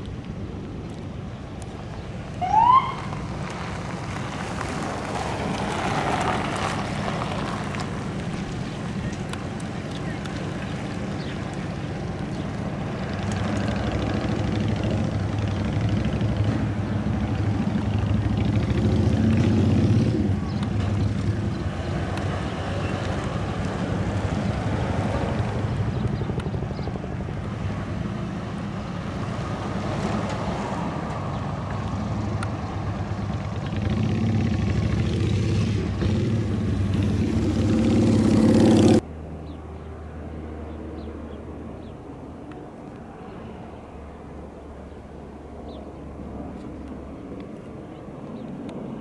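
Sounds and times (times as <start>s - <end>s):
low engine rumble: 0.0s - 38.3s
vehicles accelerating past: 0.9s - 49.0s.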